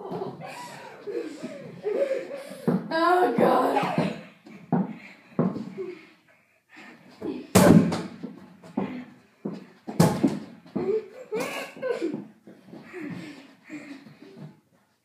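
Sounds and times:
exercise ball slamming: 7.5s - 8.2s, 9.9s - 10.5s.

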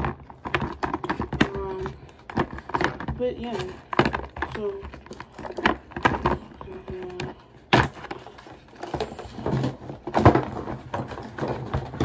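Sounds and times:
jars clicking and clattering: 0.0s - 12.0s.

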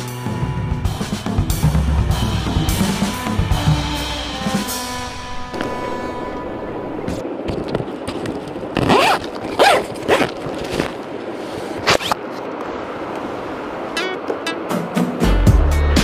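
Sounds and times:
bag zipper being pulled open: 8.8s - 11.0s, 11.8s - 12.2s.

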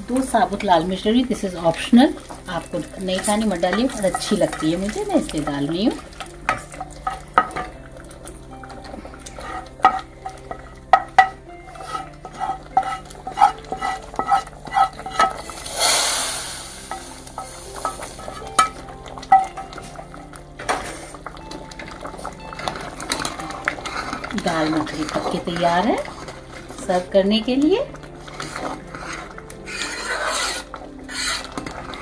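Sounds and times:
hot oil hissing: 0.0s - 21.4s, 28.2s - 32.0s
spatula scraping frying pan: 0.4s - 32.0s.

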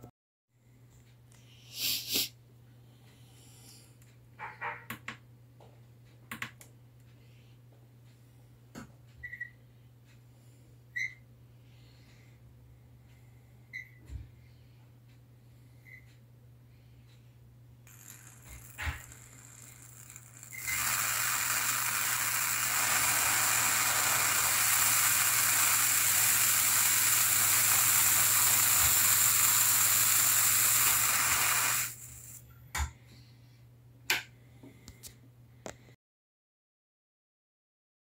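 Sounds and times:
tesla coil plasma hissing: 17.9s - 32.4s.

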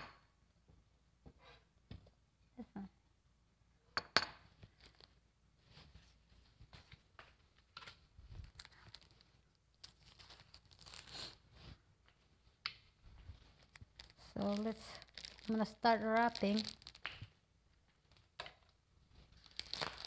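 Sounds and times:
plastic packaging crinkling: 8.4s - 11.4s, 13.4s - 17.3s, 19.3s - 20.0s.

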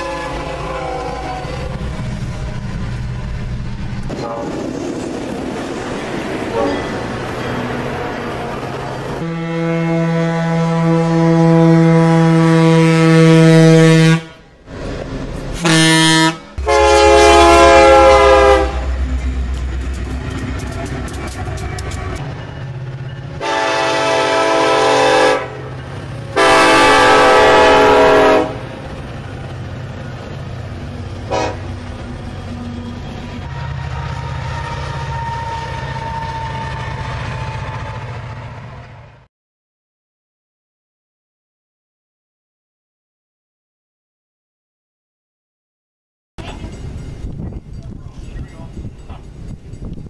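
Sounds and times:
locomotive air horn blasts: 0.0s - 1.8s, 6.5s - 6.8s, 9.2s - 14.5s, 15.6s - 19.0s, 23.4s - 25.7s, 26.3s - 28.7s, 31.3s - 31.8s, 33.4s - 37.0s
freight train rumbling past: 0.0s - 39.3s, 46.4s - 50.0s.

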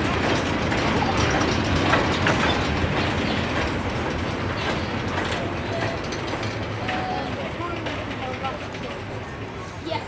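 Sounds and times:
freight train rumbling: 0.0s - 10.0s.

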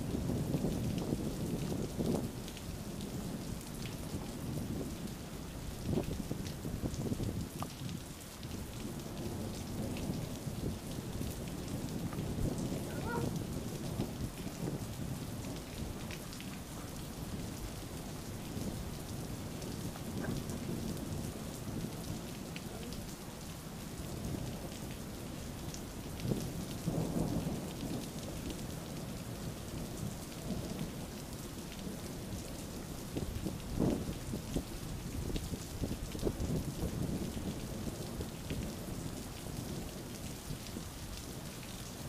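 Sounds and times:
steady rain: 0.0s - 42.0s
low thunder rumbling: 8.5s - 23.2s, 26.1s - 31.1s.

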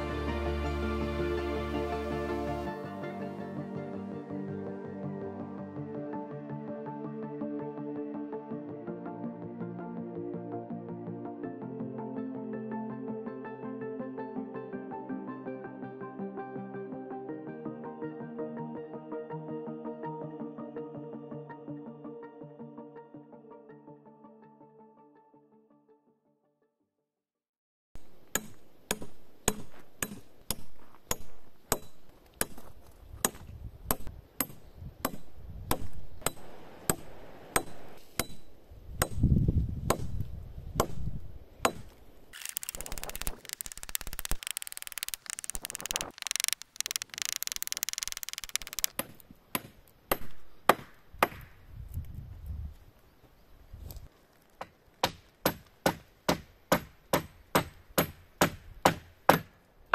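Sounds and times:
hatchet chopping log: 28.3s - 32.6s, 33.2s - 37.0s, 37.6s - 39.2s, 39.9s - 40.2s, 41.7s - 41.9s, 48.9s - 51.5s, 54.6s - 59.6s
rough steady noise: 42.4s - 49.0s.

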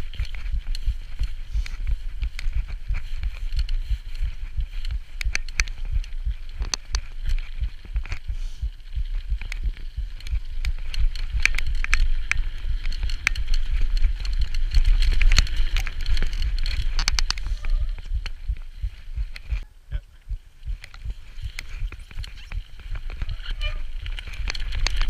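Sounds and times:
mountain bike rattling: 0.0s - 19.7s, 20.5s - 25.0s
wind on microphone: 0.0s - 25.0s
sharp clicks and knocks: 0.2s - 8.3s, 9.2s - 19.6s.

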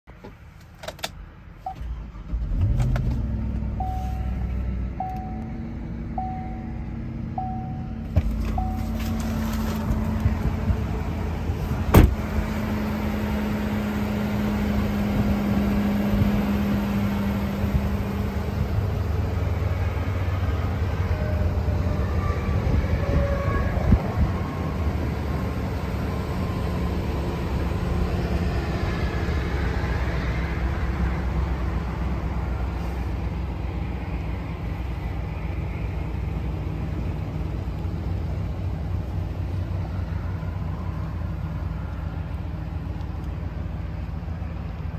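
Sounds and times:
sharp thud: 11.9s - 12.2s.

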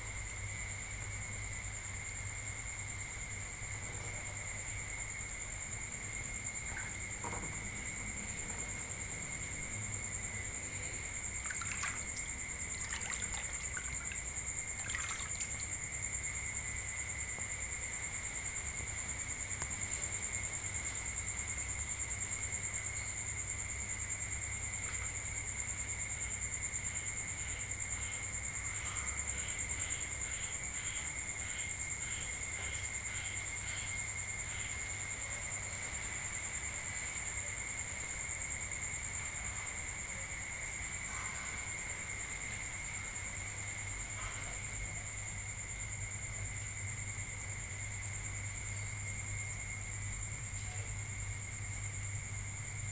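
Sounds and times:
crickets trilling: 0.0s - 52.9s
repeating insect chirp: 5.4s - 19.2s.

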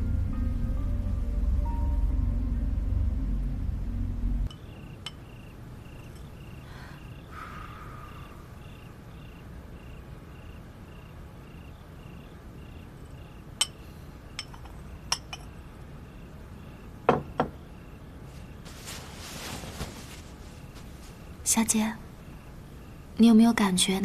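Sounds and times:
crickets chirping: 0.0s - 24.0s
spoon clinking on porcelain bowl: 13.6s - 13.8s, 14.4s - 15.5s
bowl knocking when set down: 17.1s - 17.6s.

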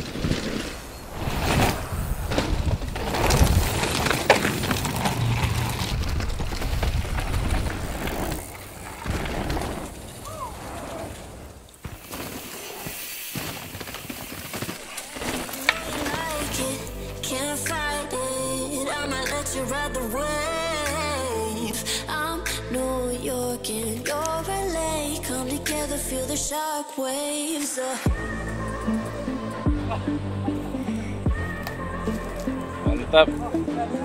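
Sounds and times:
bike knocks and rattles: 0.0s - 10.2s, 11.8s - 16.6s
tyres crunching on gravel: 0.0s - 18.0s.

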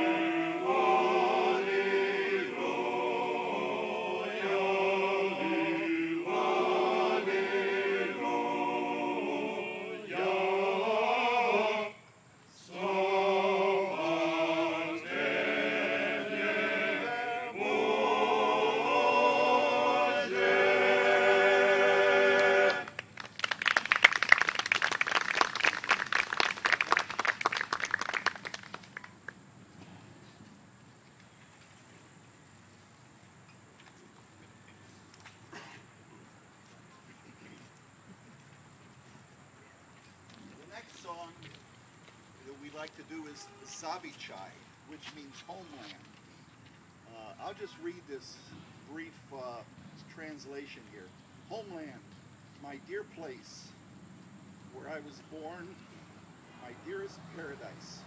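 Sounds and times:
men's choir singing a cappella: 0.0s - 23.0s
applause: 22.8s - 29.4s.

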